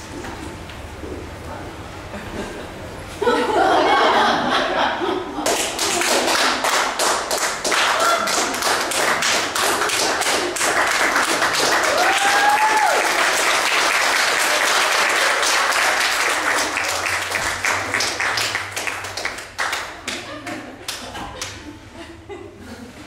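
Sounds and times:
audience applauding: 5.4 - 21.6
crowd cheering: 7.7 - 21.2.

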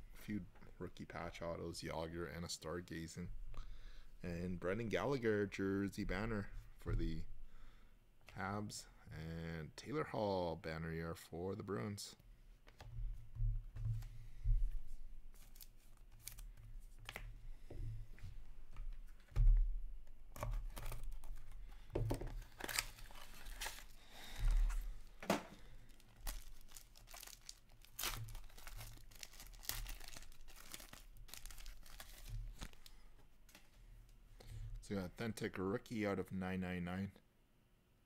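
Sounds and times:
foil wrapper tearing and crinkling: 22.4 - 24.0, 25.9 - 32.8.

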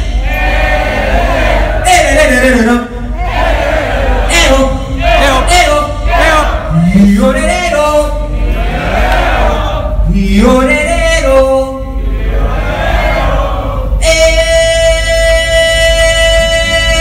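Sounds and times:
crowd chanting: 0.2 - 1.8, 3.2 - 4.3, 8.4 - 10.0, 12.1 - 13.9
man singing through pa: 4.3 - 8.3, 10.0 - 12.0, 13.9 - 17.0.

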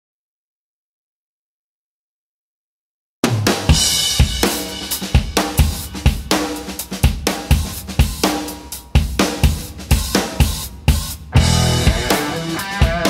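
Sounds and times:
background music with drum beat: 3.2 - 13.0.

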